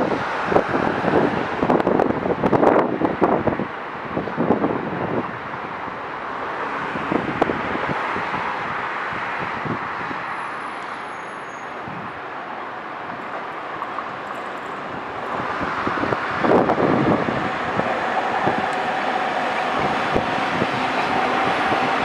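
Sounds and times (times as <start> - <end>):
train wheels rolling on rails: 9.8 - 22.0.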